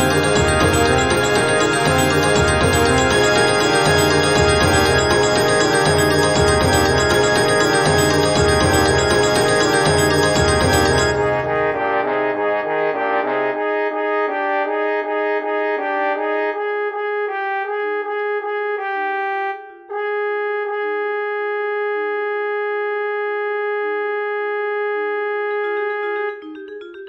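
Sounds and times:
synthetic orchestral music: 0.0s - 17.8s, 25.6s - 27.0s.

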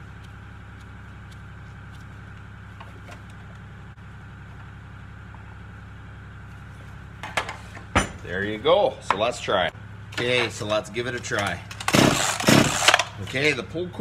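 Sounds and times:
motor humming: 0.0s - 13.4s.

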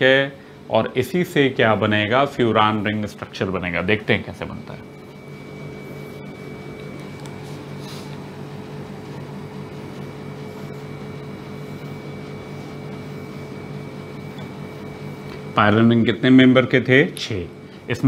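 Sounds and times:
machine-like room hum: 0.0s - 18.0s
marker squeaking on whiteboard: 7.7s - 8.2s.

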